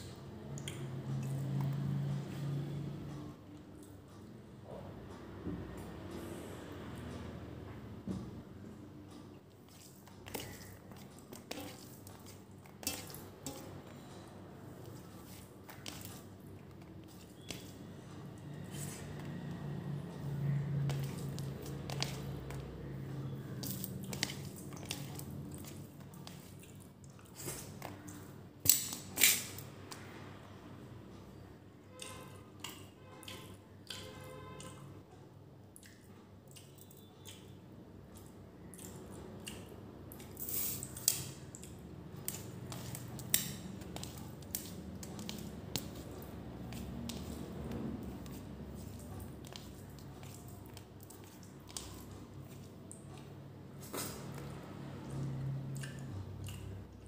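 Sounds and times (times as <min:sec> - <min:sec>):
wet chewing and mouth smacks: 0:20.4 - 0:29.6, 0:35.7 - 0:57.0.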